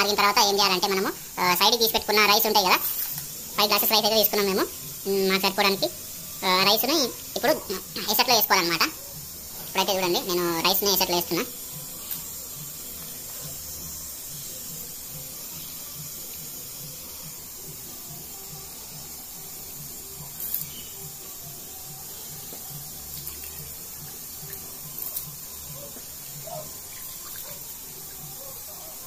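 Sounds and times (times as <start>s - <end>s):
low regular pulsing: 0.0s - 29.0s
water boiling in a pot: 16.5s - 29.0s.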